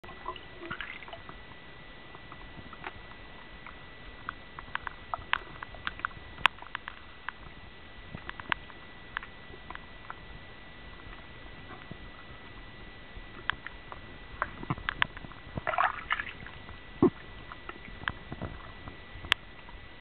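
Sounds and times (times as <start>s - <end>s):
sharp underwater clicks: 2.2s - 7.5s, 13.4s - 19.8s.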